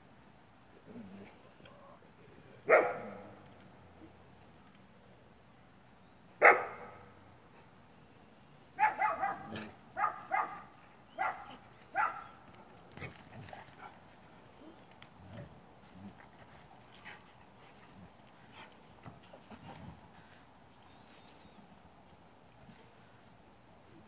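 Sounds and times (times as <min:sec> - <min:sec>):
dog barking: 0:02.7 - 0:03.3, 0:06.4 - 0:07.0, 0:08.8 - 0:12.3
paws thumping and scuffling: 0:11.2 - 0:15.0, 0:16.0 - 0:20.4.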